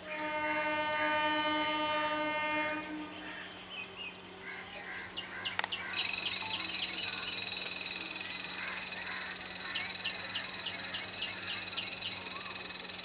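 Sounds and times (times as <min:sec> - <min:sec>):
train horn blast: 0:00.0 - 0:03.6
sharp click: 0:05.5 - 0:05.8
high pulsing tone: 0:06.0 - 0:11.2.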